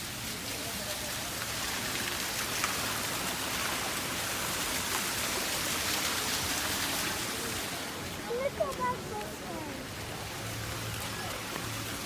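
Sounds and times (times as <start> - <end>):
small waterfall splashing: 0.0 - 12.0.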